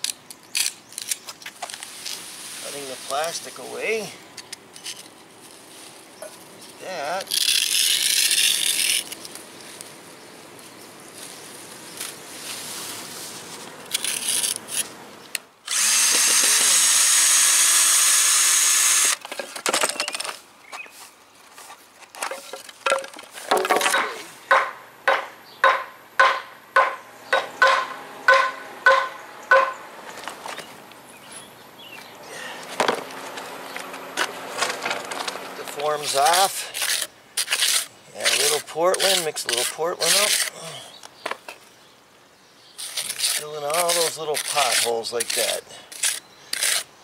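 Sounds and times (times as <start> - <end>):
power drill running: 15.7 - 19.2
hammer strikes with ringing note: 24.0 - 29.8.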